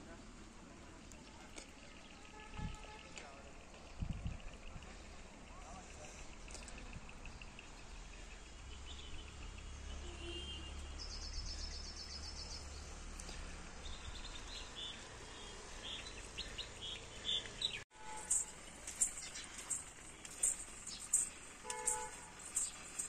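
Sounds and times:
small birds chirping: 3.1 - 23.0
steady low rumble: 3.6 - 8.9.

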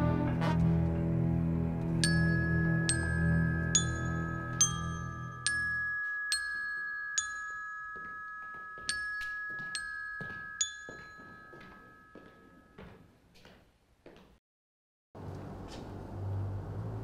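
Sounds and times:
high held tones: 1.9 - 13.1
sparse ringing struck notes: 2.0 - 12.8.

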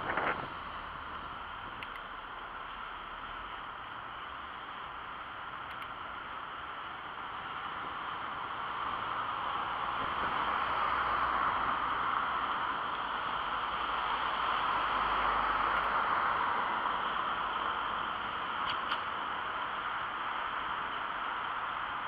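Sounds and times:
cars passing: 8.0 - 22.0.

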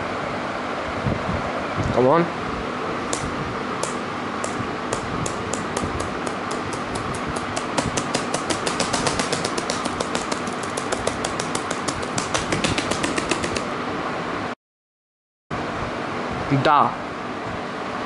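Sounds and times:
laptop key tapped rapidly: 3.8 - 13.7.

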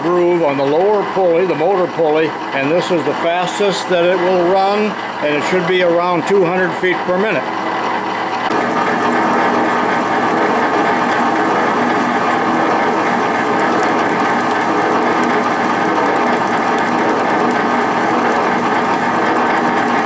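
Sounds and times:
bandsaw running: 8.4 - 20.0.

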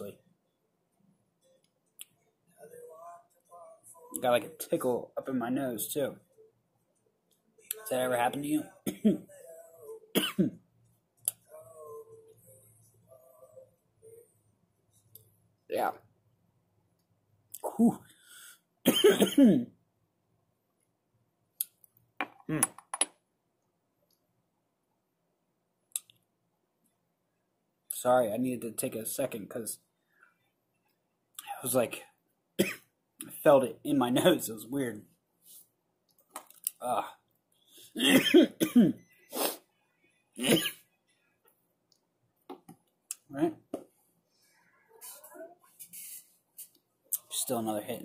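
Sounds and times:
man coughing: 8.8 - 9.4, 10.1 - 10.6, 18.9 - 19.7, 32.6 - 32.8, 38.0 - 39.0, 40.4 - 40.8.

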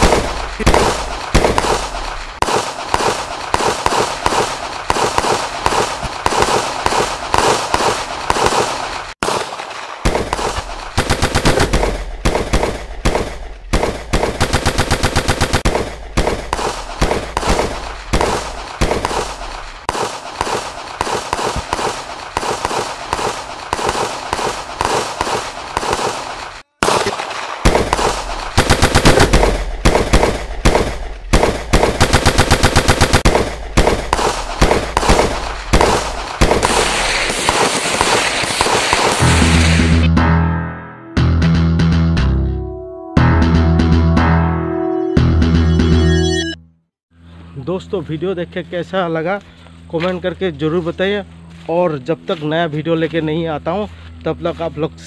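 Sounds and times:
long automatic burst: 0.0 - 40.1
submachine gun fire: 0.0 - 40.1.

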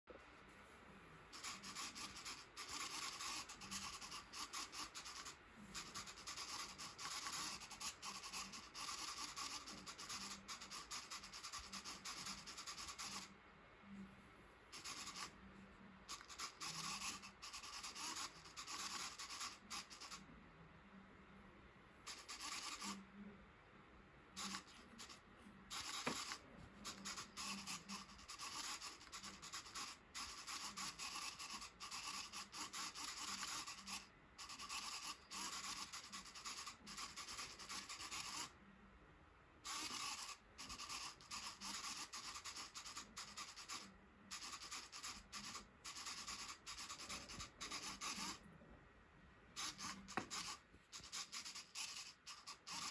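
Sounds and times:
servo motor buzzing: 1.4 - 13.3, 14.8 - 15.4, 16.1 - 20.2, 22.1 - 23.0, 24.4 - 38.5, 39.7 - 48.4, 49.6 - 52.9
ball rolling on cardboard: 25.8 - 27.8, 50.0 - 50.4.

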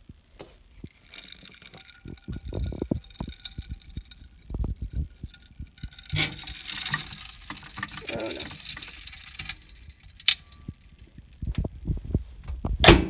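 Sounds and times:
plate clacking down: 0.9 - 11.0.

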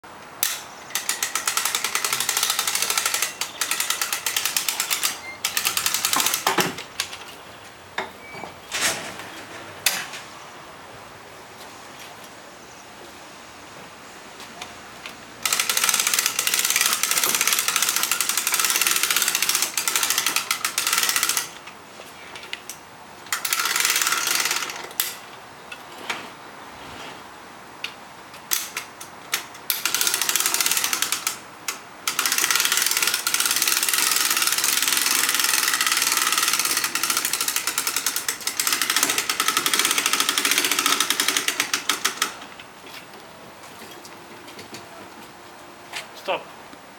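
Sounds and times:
lifting mechanism clattering: 0.4 - 7.4.

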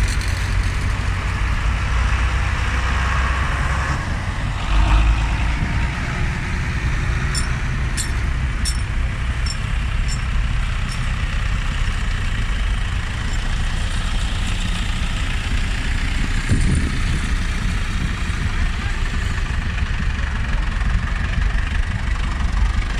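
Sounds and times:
tractor engines rumbling: 0.0 - 22.9
light metallic clinks: 7.3 - 11.1.

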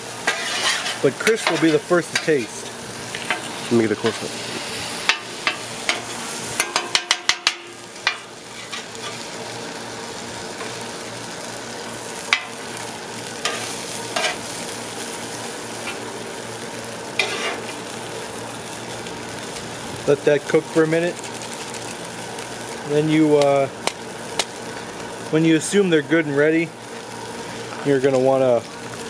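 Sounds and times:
noodles sizzling on a griddle: 0.0 - 29.0
metal spatula scraping griddle: 0.2 - 9.3, 13.4 - 14.5, 17.2 - 17.8.

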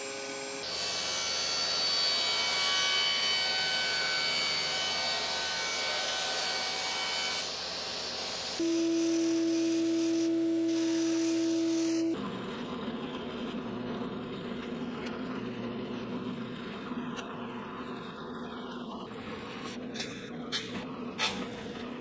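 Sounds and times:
table saw cutting plastic: 0.0 - 12.2
belt sander humming: 6.4 - 12.2.

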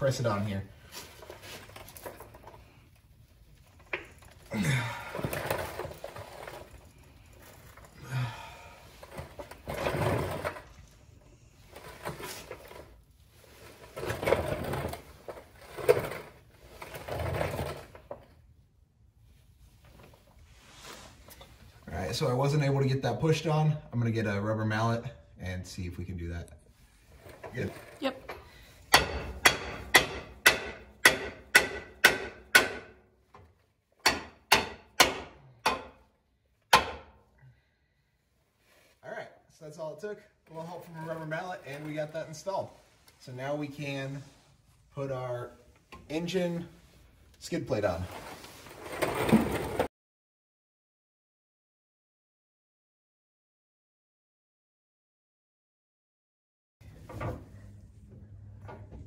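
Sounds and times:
metal bracket rattling and scraping: 27.1 - 36.1
rubber mallet striking steel: 28.9 - 33.0.

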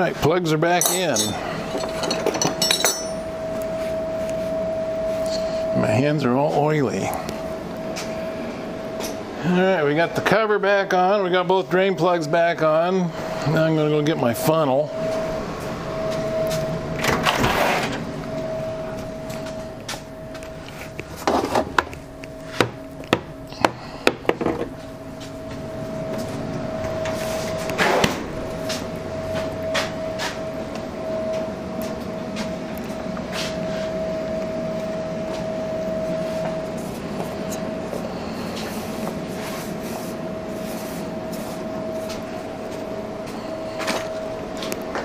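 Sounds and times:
steady high tone: 0.7 - 45.0
handling noises: 0.8 - 4.6, 16.0 - 31.4.

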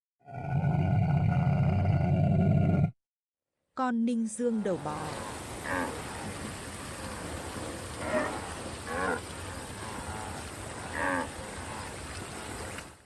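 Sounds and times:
background hiss: 4.4 - 13.0
wildebeest calling: 5.0 - 12.1.

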